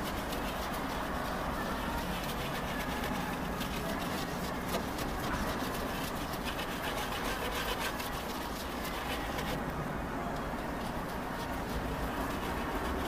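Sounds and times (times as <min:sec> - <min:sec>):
bristle brush scrubbing paper: 0:00.0 - 0:09.7, 0:10.5 - 0:13.0.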